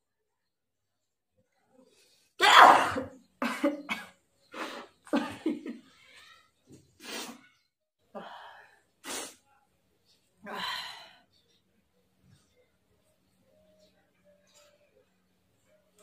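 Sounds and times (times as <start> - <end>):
woman coughing: 2.4 - 4.1.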